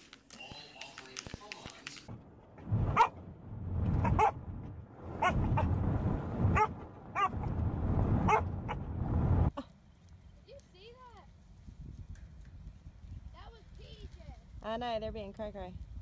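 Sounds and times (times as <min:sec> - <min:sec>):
car road noise rumble: 0:02.1 - 0:09.5
dog yipping barks: 0:04.1 - 0:04.3.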